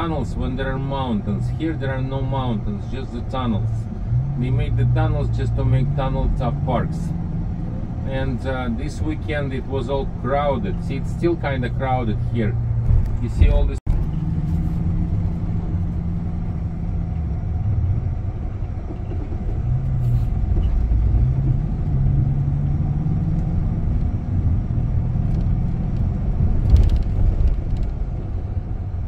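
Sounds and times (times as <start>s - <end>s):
vehicle engine rumble: 0.0s - 29.0s.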